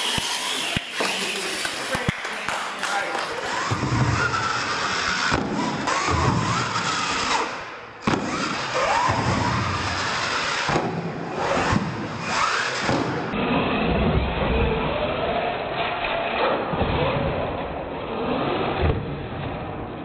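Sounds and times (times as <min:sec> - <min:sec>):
toy truck motor whining: 0:00.0 - 0:02.0, 0:03.4 - 0:10.7, 0:11.3 - 0:13.3.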